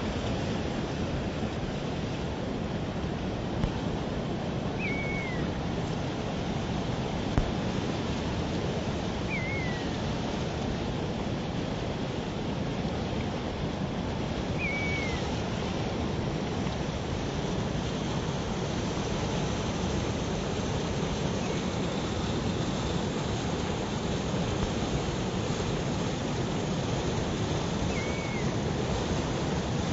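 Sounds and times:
river flowing: 0.0s - 29.9s
bird chirping: 4.8s - 5.4s, 9.3s - 9.8s.

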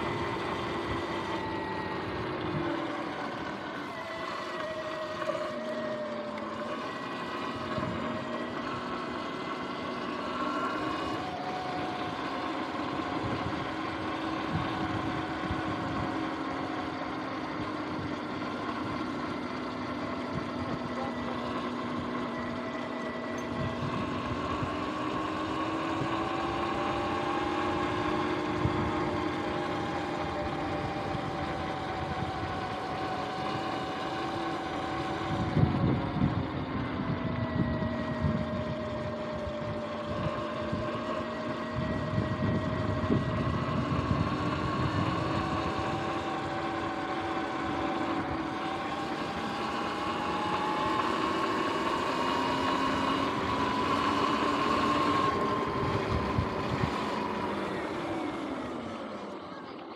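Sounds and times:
electric motor and chain whining: 0.0s - 59.4s.

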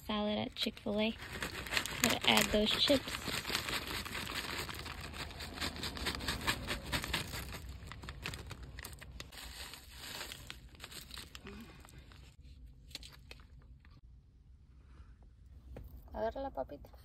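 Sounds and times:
plastic packet crinkling: 0.6s - 13.6s.

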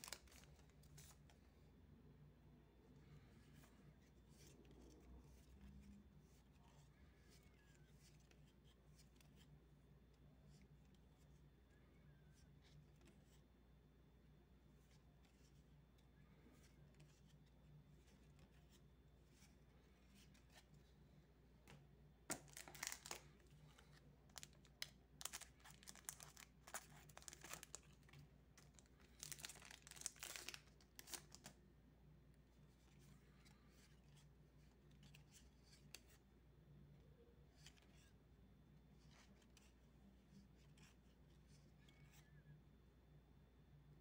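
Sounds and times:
cards rustling: 0.0s - 1.5s, 3.1s - 9.6s, 14.8s - 31.6s.

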